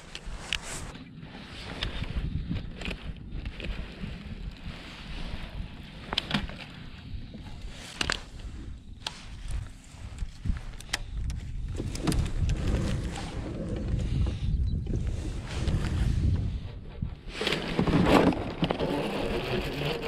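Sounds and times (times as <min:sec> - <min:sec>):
wind and water rumble: 0:00.0 - 0:20.0
rod and reel clicks and knocks: 0:01.6 - 0:14.3.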